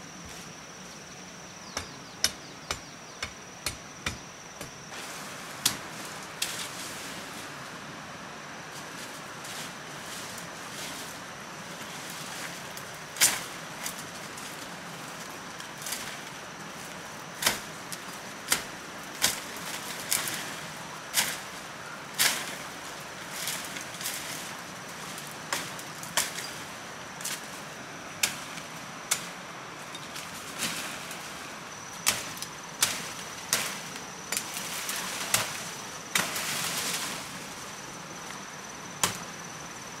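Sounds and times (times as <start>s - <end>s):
knife chopping branches: 1.7s - 4.8s, 5.6s - 6.6s, 17.4s - 17.8s, 32.0s - 36.8s, 39.0s - 39.3s.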